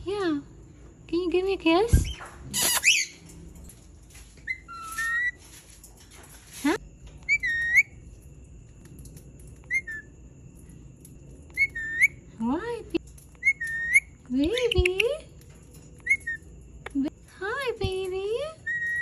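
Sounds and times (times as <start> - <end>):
parakeet screech: 2.0 - 3.2
parakeet whistled calls: 2.0 - 3.2, 4.5 - 5.4, 7.3 - 8.0, 9.7 - 10.0, 11.6 - 12.2, 13.4 - 14.1.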